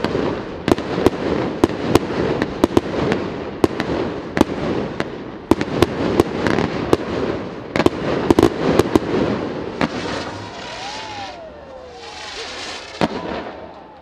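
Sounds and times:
fireworks bangs and crackles: 0.0s - 14.0s.

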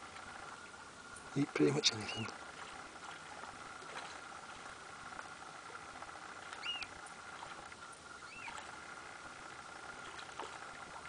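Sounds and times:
faint steady hum: 0.0s - 11.0s
high squeaky bird calls: 6.5s - 7.0s, 8.2s - 8.6s.

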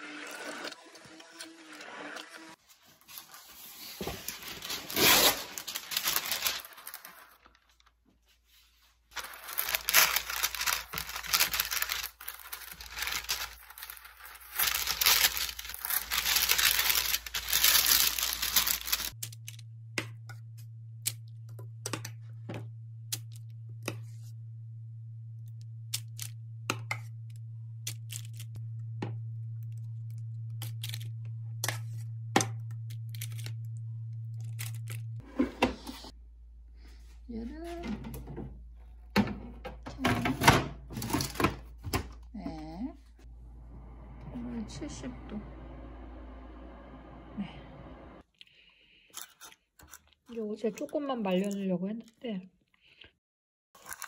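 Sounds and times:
baking paper rustling and tearing: 2.6s - 19.6s, 53.8s - 54.0s
low hum: 9.2s - 38.8s, 43.1s - 48.2s.

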